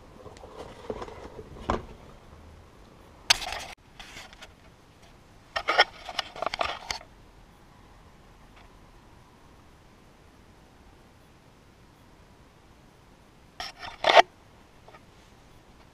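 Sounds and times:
scraping: 0.0 - 2.2, 13.6 - 14.2
rubbery rustling of latex mask: 0.1 - 2.2.

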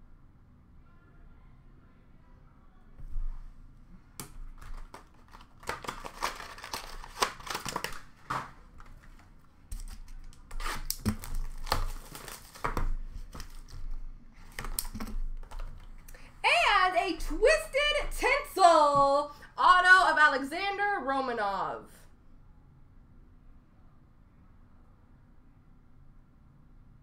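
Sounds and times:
foil wrappers crinkling: 4.4 - 16.2.

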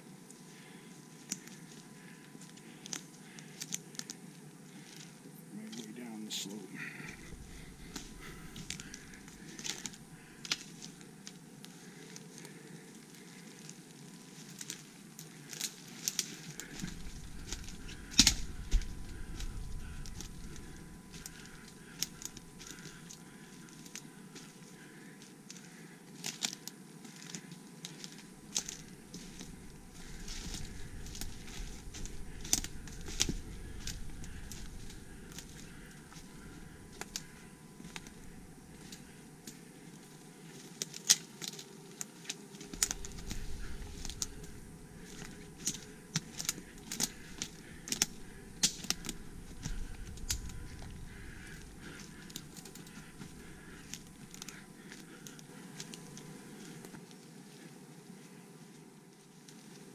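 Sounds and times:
microphone rumble: 7.0 - 10.4, 16.8 - 22.9, 28.8 - 37.4, 46.6 - 54.4
footsteps crunching on rocky ground: 7.0 - 11.0, 15.6 - 24.6, 27.1 - 41.6, 42.6 - 57.1.

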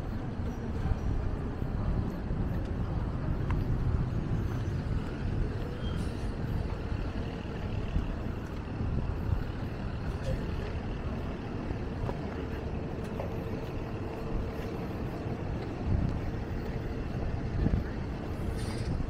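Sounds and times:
low rumbling outdoor background: 0.0 - 19.0.

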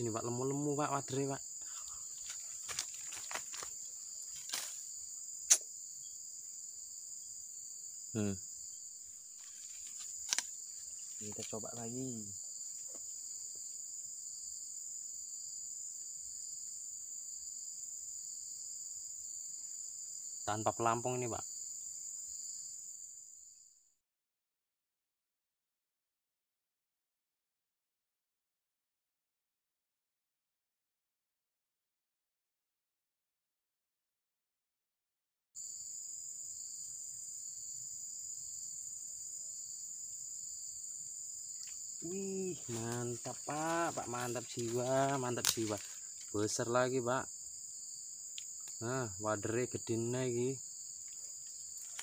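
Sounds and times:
high-pitched insect chorus: 0.0 - 24.0, 35.6 - 52.0.

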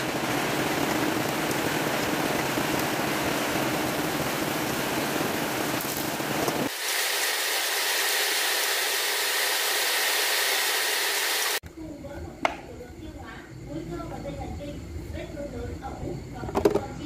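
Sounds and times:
oil sizzling: 0.0 - 11.6.

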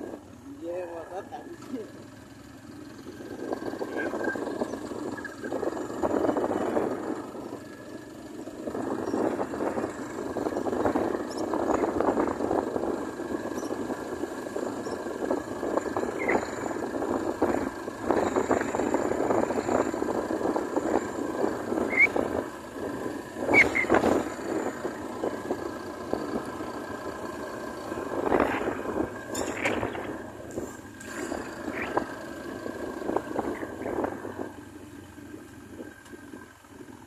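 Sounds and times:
wind noise on microphone: 3.3 - 7.6, 8.6 - 34.7.

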